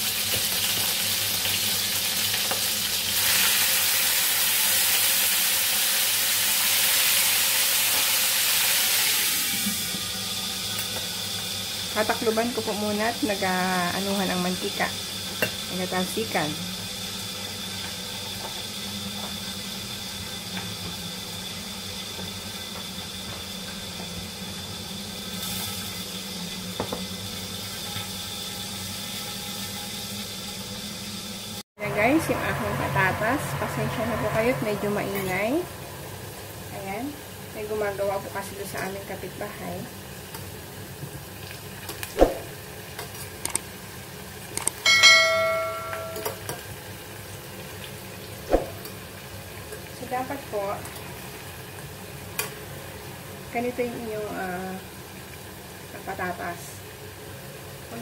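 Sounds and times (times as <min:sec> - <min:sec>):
pork frying in oil: 0:00.0 - 0:58.0
steady hum: 0:31.8 - 0:37.2
ringing metal clang: 0:44.9 - 0:46.5.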